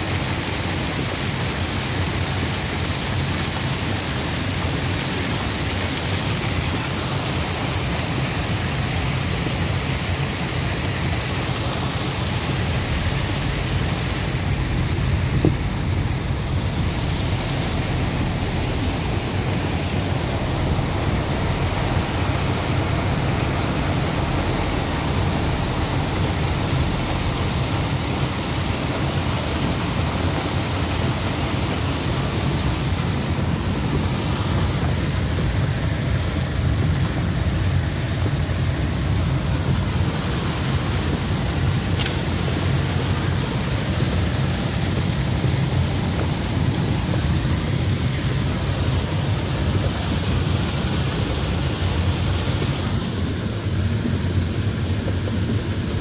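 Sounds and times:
water rushing down rock: 0:00.0 - 0:56.0
low rumble: 0:11.4 - 0:30.2.

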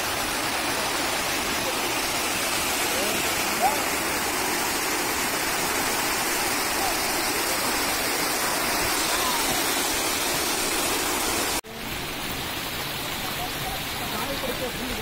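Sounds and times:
water rushing down cascade: 0:00.0 - 0:15.0.

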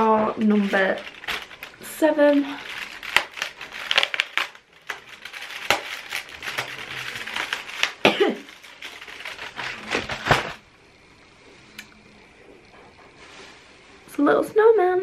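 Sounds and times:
cardboard and plastic crinkling: 0:00.0 - 0:10.6.

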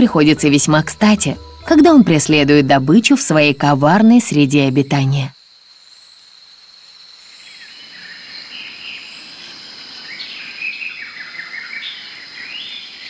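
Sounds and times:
high-pitched insect drone: 0:00.0 - 0:10.3
birds chirping and warbling: 0:07.4 - 0:13.0.

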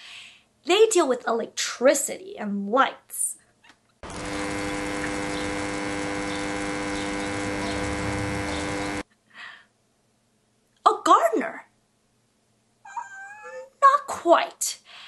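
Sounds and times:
electrical buzzing hum: 0:04.0 - 0:09.0.

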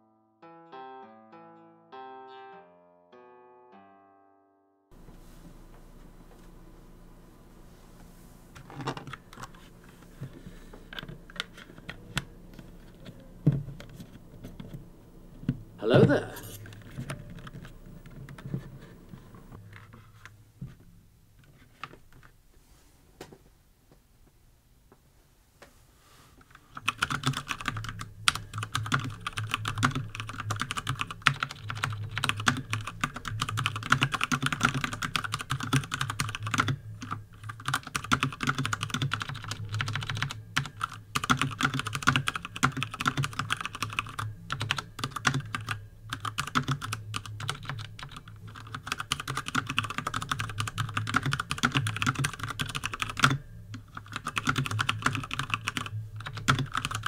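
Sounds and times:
mechanical keyboard typing: 0:26.7 - 0:57.0.

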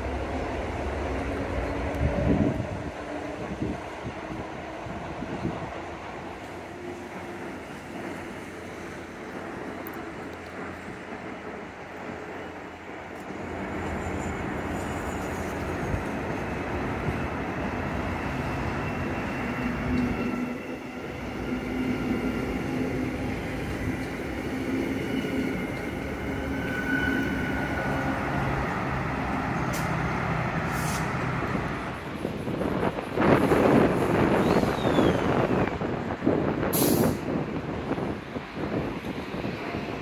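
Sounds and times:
train wheels rumbling on rails: 0:00.0 - 0:40.0.

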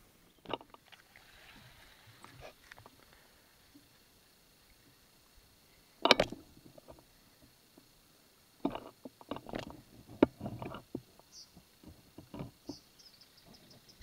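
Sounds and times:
knocks and rattles on boat: 0:08.7 - 0:11.1, 0:11.8 - 0:12.8.

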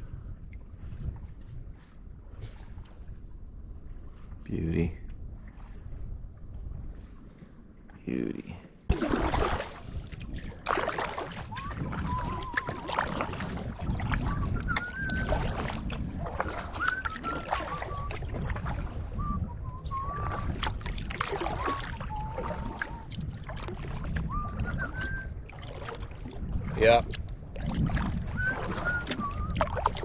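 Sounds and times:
canoe paddle strokes: 0:08.9 - 0:30.0
water splashing and dripping: 0:08.9 - 0:30.0
man whistling a slow tune: 0:11.5 - 0:12.9, 0:14.3 - 0:15.6, 0:16.6 - 0:18.4, 0:19.1 - 0:20.6, 0:21.4 - 0:23.1, 0:24.2 - 0:25.4, 0:28.3 - 0:29.8.

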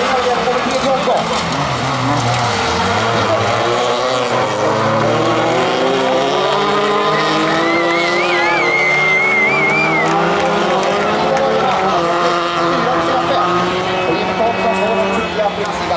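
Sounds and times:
race car engines revving: 0:00.0 - 0:15.9
wavering high whistle tone: 0:07.6 - 0:10.1.

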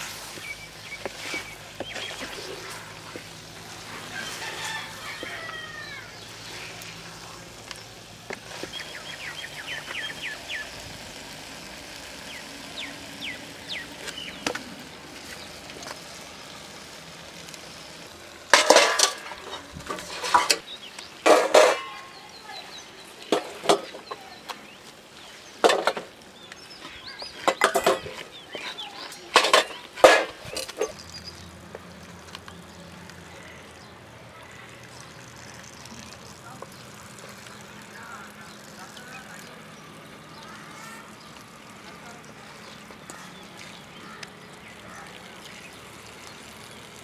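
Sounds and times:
wooden spatula scraping pot: 0:00.0 - 0:07.3, 0:18.5 - 0:22.0, 0:26.7 - 0:31.8.

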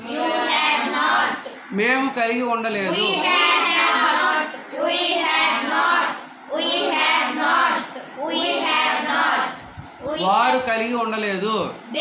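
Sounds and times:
children chanting in unison: 0:00.0 - 0:01.6, 0:02.9 - 0:10.3.

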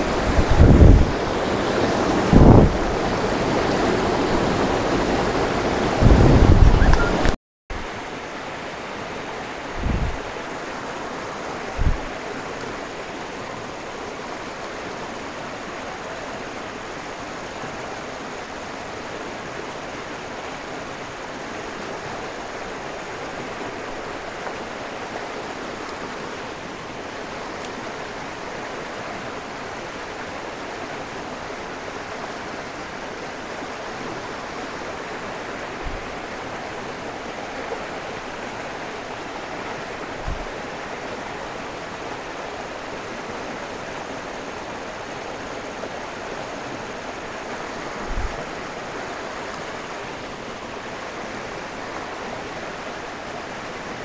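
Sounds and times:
water rushing over rocks: 0:00.0 - 0:54.0.

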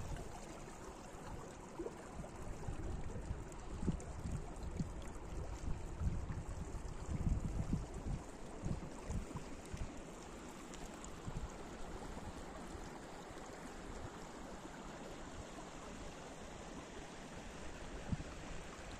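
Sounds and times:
stream water rushing: 0:00.0 - 0:18.9
wind buffeting microphone: 0:02.5 - 0:09.9.

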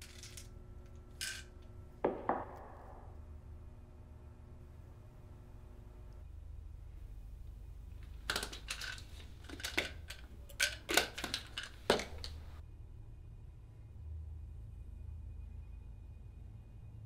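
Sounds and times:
small hard objects clicking: 0:08.0 - 0:12.6.

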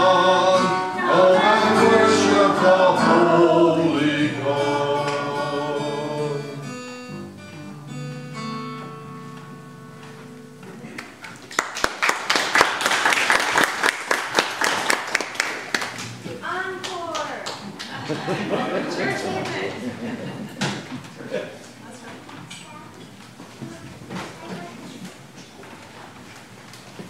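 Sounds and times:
group of voices singing: 0:00.0 - 0:06.8
acoustic guitars: 0:00.0 - 0:11.4, 0:15.0 - 0:27.0
congregation clapping: 0:10.9 - 0:16.2, 0:16.8 - 0:18.5.

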